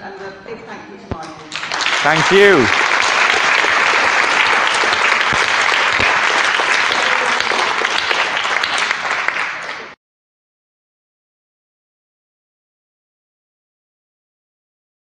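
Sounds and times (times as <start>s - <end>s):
audience applauding: 1.5s - 10.0s.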